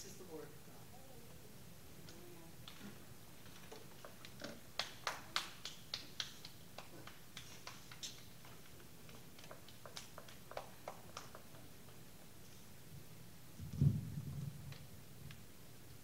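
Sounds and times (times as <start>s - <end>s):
people clapping hands: 3.9s - 11.7s.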